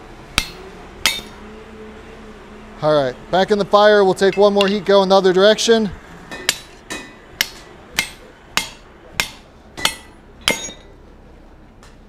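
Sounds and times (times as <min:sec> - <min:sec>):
hammer striking metal: 0:00.4 - 0:01.4, 0:04.3 - 0:04.9, 0:06.3 - 0:11.0.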